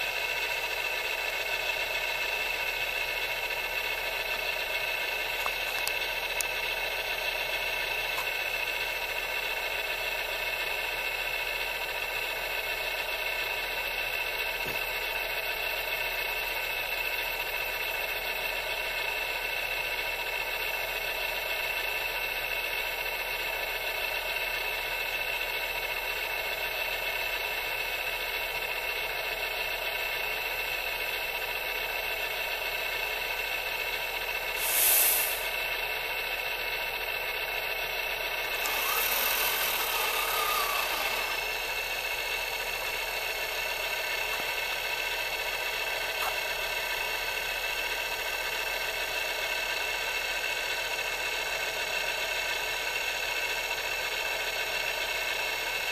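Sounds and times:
electric motor whine: 34.6s - 35.6s, 38.3s - 43.6s
short loud hiss: 34.6s - 35.6s.

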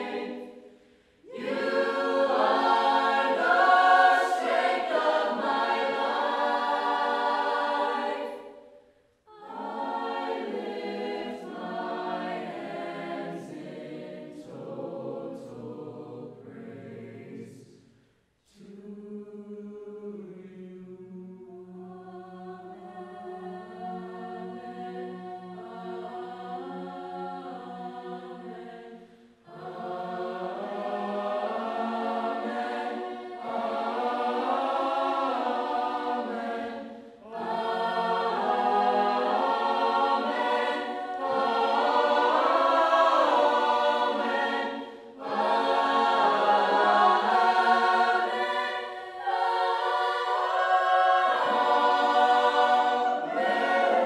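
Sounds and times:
mixed choir singing: 0.0s - 8.7s, 9.3s - 17.8s, 18.5s - 54.0s
singers breathing: 0.5s - 1.2s.

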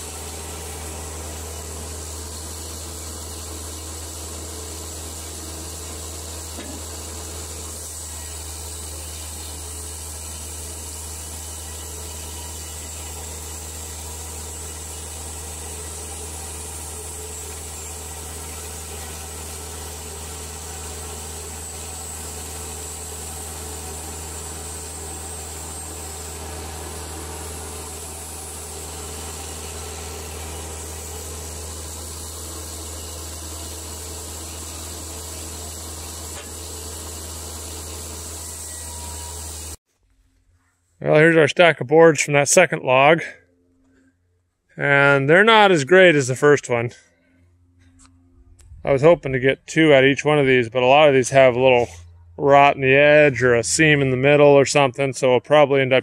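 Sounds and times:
bandsaw cutting wood: 0.0s - 39.8s.

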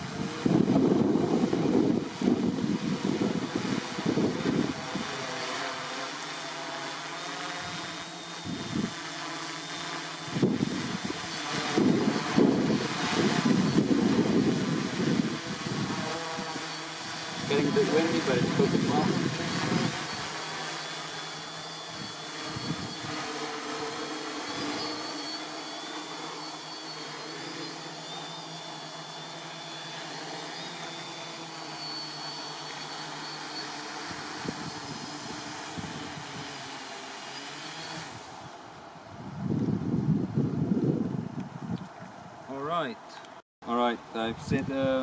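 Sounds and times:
wind noise: 0.0s - 5.3s, 7.6s - 9.0s, 10.2s - 20.4s, 21.7s - 23.3s, 34.0s - 36.7s, 38.0s - 42.5s, 44.2s - 45.0s
drone motors humming: 0.0s - 40.7s.

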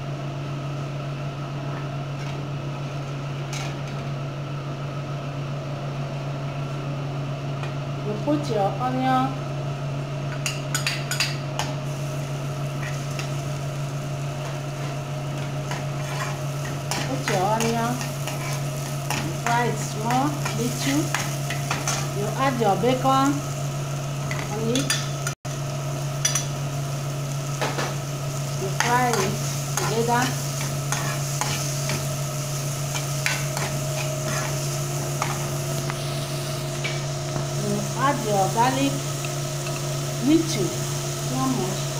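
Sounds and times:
onion sizzling in a pan: 0.0s - 41.9s
steady low hum: 0.0s - 41.9s
metal spoon scraping a pan: 14.8s - 19.4s, 29.1s - 32.0s, 32.9s - 35.5s.

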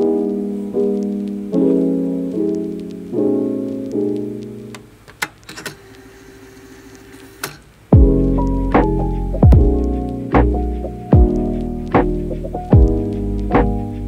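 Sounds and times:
soft piano music: 0.0s - 5.1s, 7.8s - 14.0s.

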